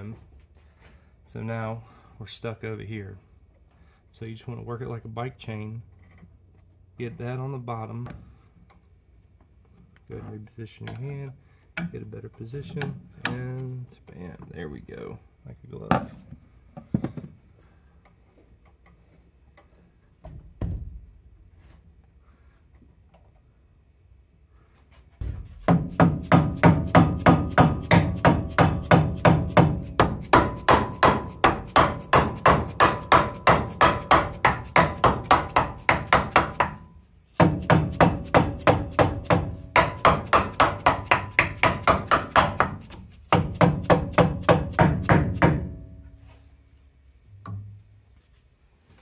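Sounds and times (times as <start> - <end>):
mallet tapping on metal pulley: 25.7 - 46.0.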